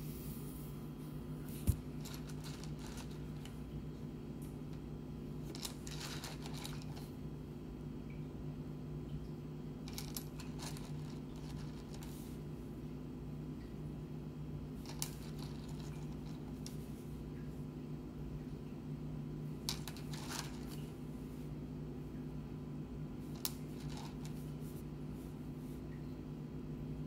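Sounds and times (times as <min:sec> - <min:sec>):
steady low hum: 0:00.0 - 0:27.0
stones clicking in fingers: 0:02.0 - 0:03.5.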